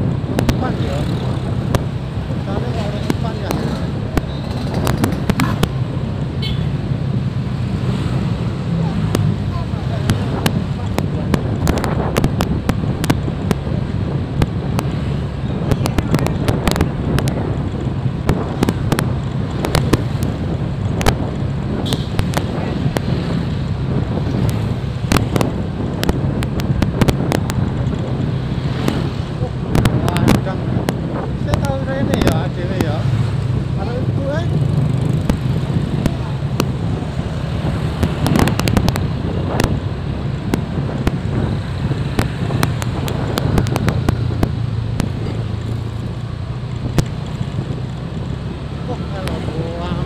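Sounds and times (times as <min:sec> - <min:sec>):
motorcycle engines running: 0:00.0 - 0:50.0
wind rushing over microphone: 0:00.0 - 0:50.0
sharp cracks: 0:03.0 - 0:05.8, 0:24.4 - 0:32.4, 0:40.4 - 0:48.0
sharp clicks: 0:24.3 - 0:33.5, 0:40.4 - 0:46.1, 0:46.7 - 0:48.0.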